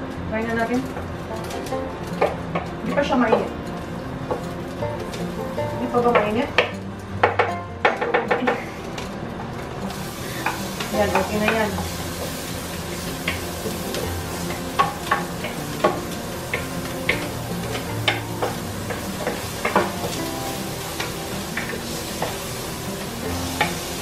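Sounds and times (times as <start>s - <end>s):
garlic sizzling in oil: 2.8s - 6.8s, 9.8s - 24.0s.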